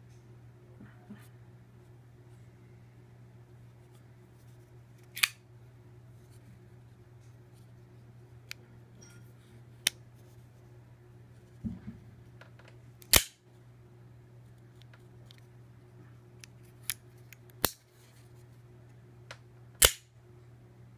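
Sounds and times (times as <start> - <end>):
steady low hum: 0.0 - 20.9
soft handling knocks: 11.6 - 12.7
folding knife blade snapping: 13.0 - 13.4, 19.8 - 20.0.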